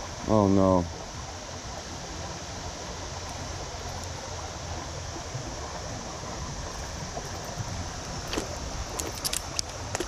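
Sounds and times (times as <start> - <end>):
water rushing over stones: 0.0 - 10.0.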